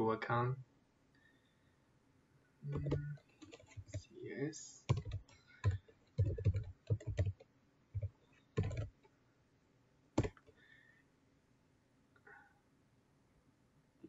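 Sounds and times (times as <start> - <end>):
computer keyboard typing: 2.7 - 4.1, 4.9 - 7.4, 8.0 - 9.0, 10.2 - 10.5.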